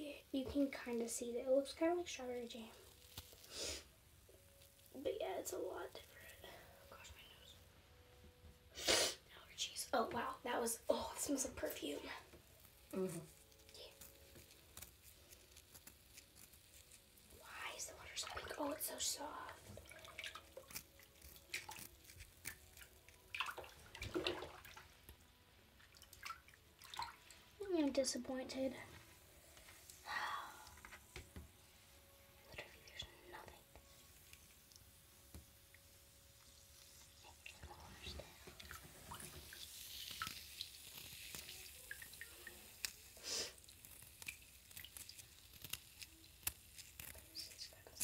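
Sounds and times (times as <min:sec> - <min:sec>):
water dripping and splashing: 0:11.1 - 0:28.0, 0:34.2 - 0:48.0
water swishing: 0:18.0 - 0:20.8, 0:23.3 - 0:25.0
hands splashing in bathwater: 0:19.8 - 0:21.9, 0:22.5 - 0:25.1, 0:25.8 - 0:27.4.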